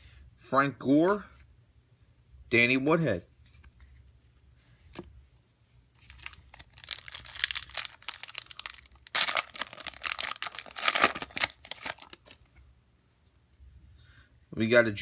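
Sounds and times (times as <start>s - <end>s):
foil wrapper crinkling and tearing: 6.0s - 12.5s.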